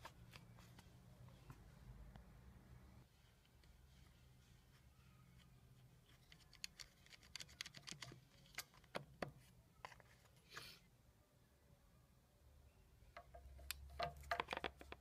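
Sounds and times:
hands clicking and tapping on metal: 13.2 - 15.0.

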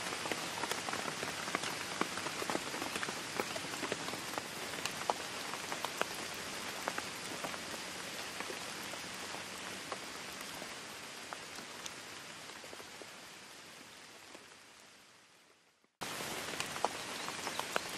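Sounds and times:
rain hiss: 0.0 - 17.9
raindrop ticks: 0.1 - 13.0, 16.1 - 17.9.

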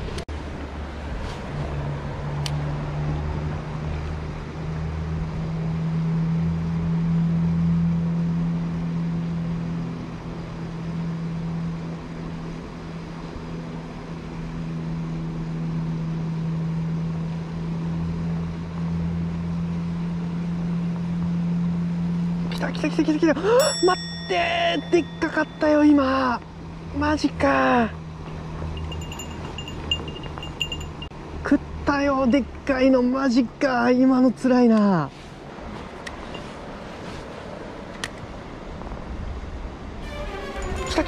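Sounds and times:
engine humming: 0.0 - 31.4.

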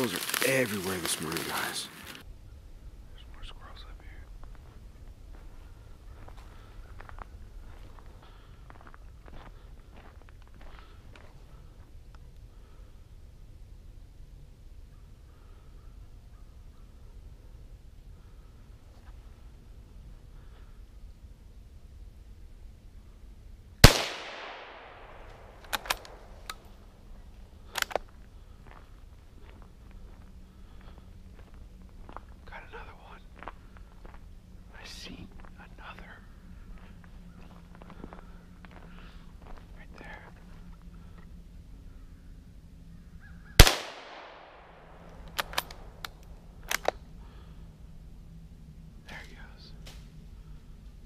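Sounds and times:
rifle shot with echo: 23.8 - 26.4, 43.6 - 46.0
light clicks: 45.1 - 47.0.

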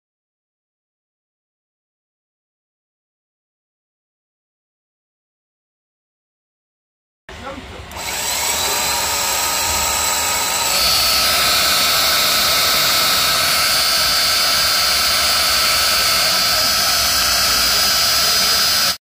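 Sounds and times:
starter motor whining: 7.9 - 19.0.

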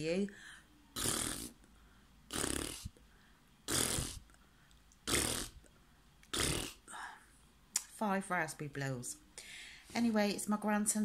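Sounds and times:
woman blowing raspberries: 1.0 - 1.7, 2.3 - 3.0, 3.7 - 4.4, 5.0 - 7.0.

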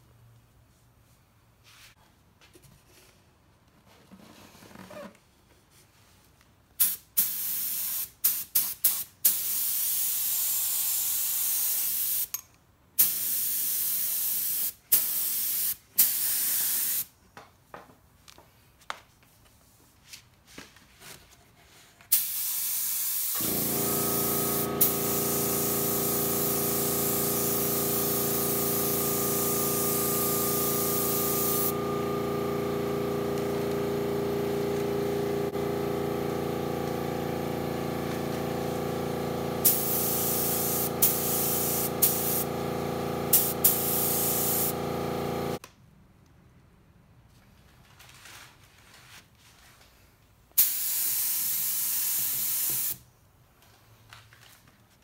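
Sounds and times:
spray gun hissing: 22.1 - 36.0, 37.0 - 45.6
air compressor humming: 23.2 - 45.6.

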